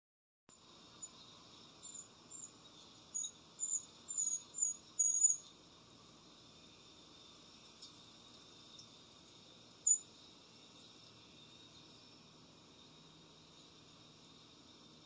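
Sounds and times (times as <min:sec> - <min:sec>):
steady high hiss: 0:00.5 - 0:15.0
bird chirping: 0:01.0 - 0:05.5, 0:09.8 - 0:11.7.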